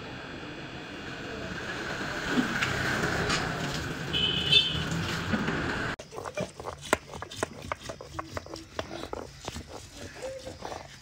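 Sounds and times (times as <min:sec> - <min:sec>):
stone roller grinding on stone: 0:06.0 - 0:11.0.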